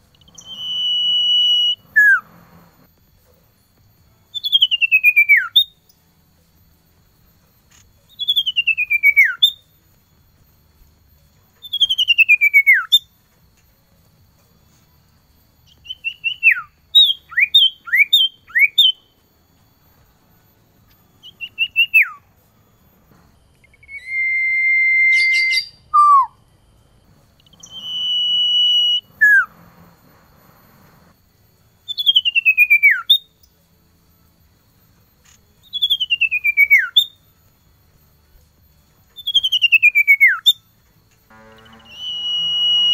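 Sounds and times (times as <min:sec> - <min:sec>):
bird singing falling whistles: 0:00.2 - 0:02.4, 0:04.3 - 0:05.8, 0:08.1 - 0:09.7, 0:11.6 - 0:13.0, 0:15.7 - 0:19.1, 0:21.2 - 0:22.2, 0:23.6 - 0:26.4, 0:27.4 - 0:29.8, 0:31.9 - 0:33.3, 0:35.6 - 0:37.1, 0:39.2 - 0:40.6, 0:41.6 - 0:42.9.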